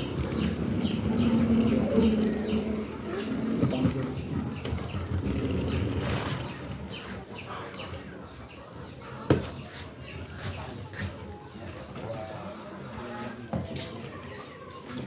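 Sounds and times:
birds chirping: 0:00.0 - 0:15.0.

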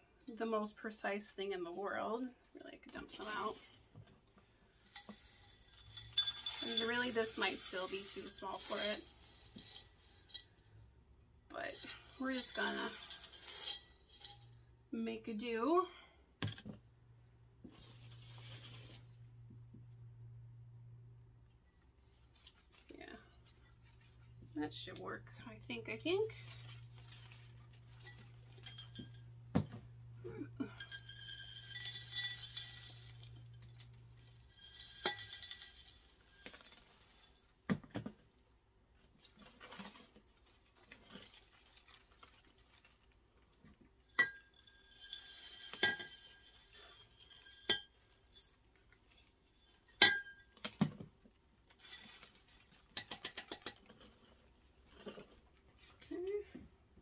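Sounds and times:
potting mix rustling pours: 0:00.4 - 0:04.0, 0:04.6 - 0:10.8, 0:11.5 - 0:15.2, 0:17.6 - 0:19.3, 0:21.9 - 0:53.0
clinks and knocks in bowl: 0:04.9 - 0:07.2, 0:28.0 - 0:30.0, 0:30.6 - 0:33.8, 0:34.4 - 0:36.7, 0:44.1 - 0:48.5, 0:50.0 - 0:51.0.

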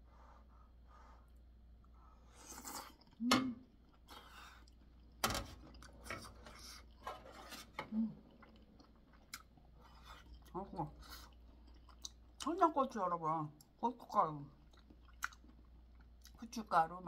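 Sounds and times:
wet chewing and slurping: 0:03.8 - 0:12.6, 0:14.5 - 0:16.4.

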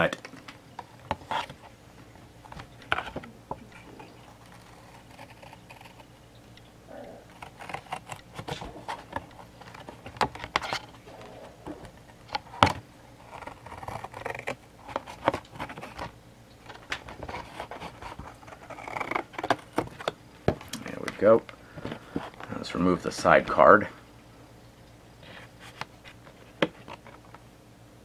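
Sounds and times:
scissors cutting cardboard: 0:02.9 - 0:06.1, 0:07.0 - 0:10.9, 0:12.3 - 0:16.1, 0:17.0 - 0:20.1.

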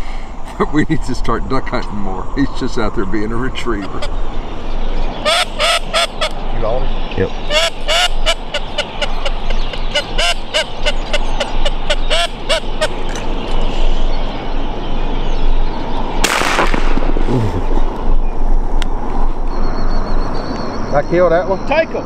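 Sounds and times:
ducks quacking: 0:02.8 - 0:04.4, 0:05.1 - 0:13.2
shotgun shot: 0:16.2 - 0:17.7.

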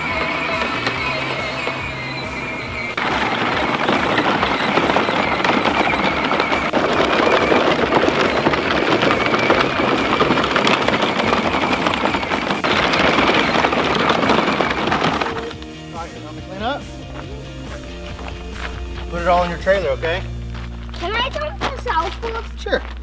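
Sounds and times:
plastic wheels crunching gravel: 0:00.0 - 0:23.0.

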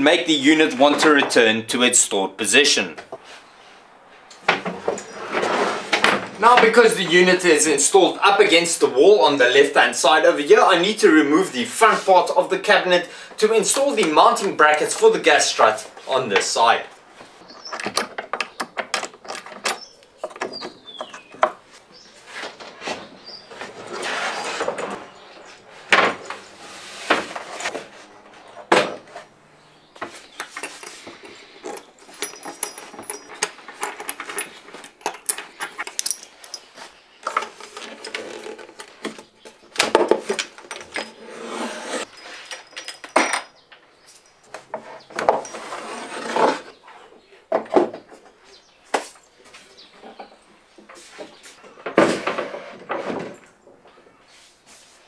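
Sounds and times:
wooden knocks and clunks: 0:37.2 - 0:41.0, 0:47.5 - 0:49.1.

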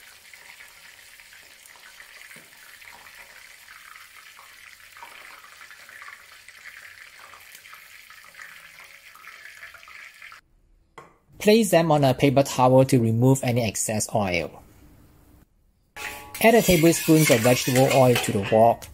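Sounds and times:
oil sizzling around frying shrimp: 0:00.0 - 0:10.4.

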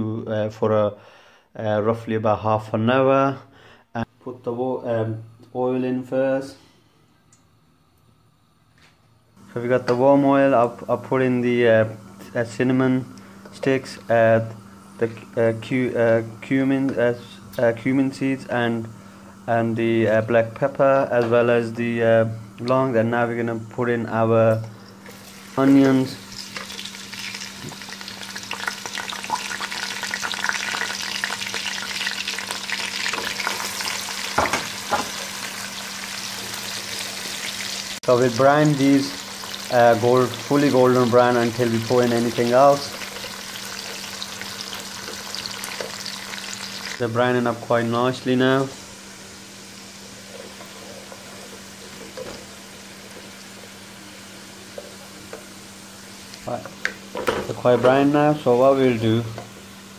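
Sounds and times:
onions sizzling in hot oil: 0:24.8 - 0:59.9.

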